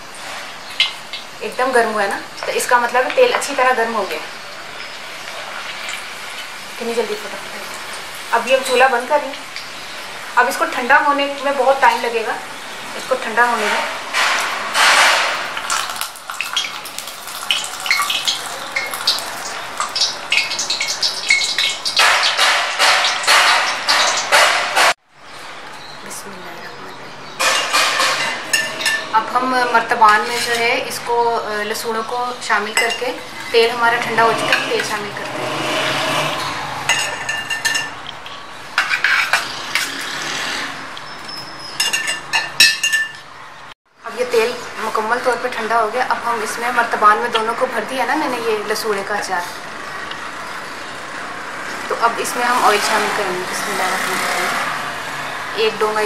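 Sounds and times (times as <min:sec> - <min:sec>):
hot oil crackling and spitting: 0:00.0 - 0:25.0, 0:31.6 - 0:42.6
ladle moving through oil: 0:14.4 - 0:22.0
spoon knocking and scraping: 0:19.8 - 0:24.9, 0:36.1 - 0:40.0
spoon clinking on metal and glass: 0:36.9 - 0:38.0, 0:41.8 - 0:43.2.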